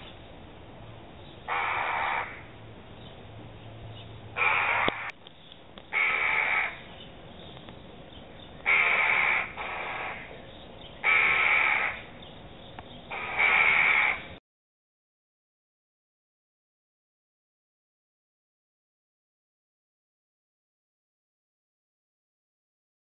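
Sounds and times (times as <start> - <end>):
jackdaws harsh alarm calls: 1.5 - 2.5, 4.3 - 5.2, 5.9 - 7.1, 8.4 - 12.2, 13.0 - 14.4.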